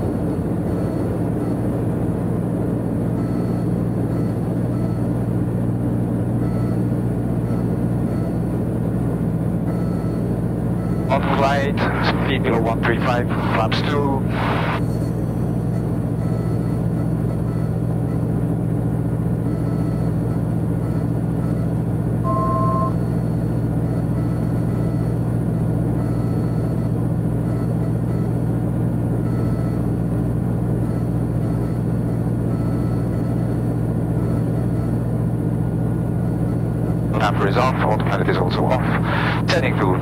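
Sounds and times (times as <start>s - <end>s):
aircraft engine and propeller droning: 0.0s - 40.0s
two-tone electronic beep: 6.4s - 8.4s, 9.7s - 10.2s, 19.4s - 25.2s, 26.0s - 28.4s, 29.2s - 29.8s, 30.8s - 35.0s.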